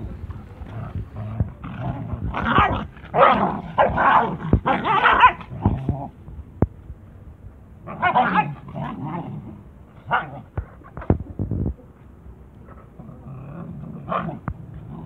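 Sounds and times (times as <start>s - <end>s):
puppies growling and barking: 0.0s - 6.2s, 7.8s - 10.8s, 12.9s - 15.0s.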